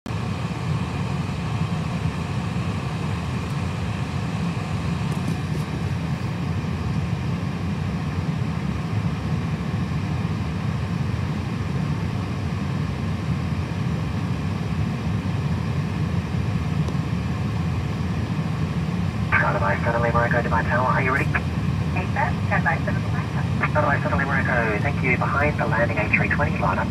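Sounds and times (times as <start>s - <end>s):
jet engines idling drone: 0.2s - 26.9s
faint steady whine: 9.8s - 26.9s.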